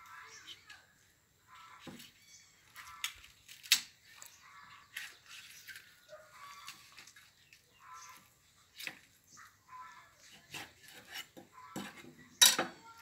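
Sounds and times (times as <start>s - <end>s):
knife scraping through chicken: 10.2s - 12.1s.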